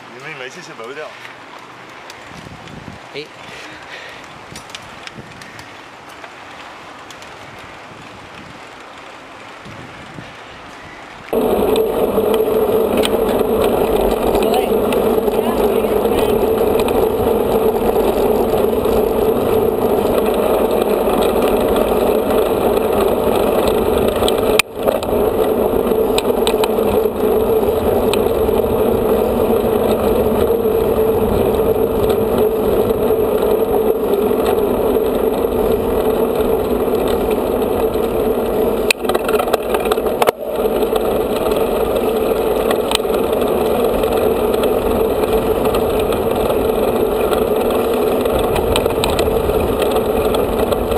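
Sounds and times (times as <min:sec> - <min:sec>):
bike tyres rolling on tarmac: 0:00.0 - 0:50.9
wind rushing: 0:11.3 - 0:50.9.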